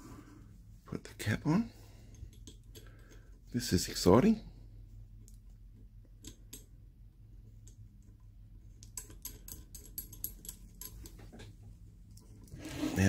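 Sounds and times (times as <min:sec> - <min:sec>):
low steady hum: 0:00.0 - 0:13.0
small objects clicking and tapping: 0:08.8 - 0:11.5.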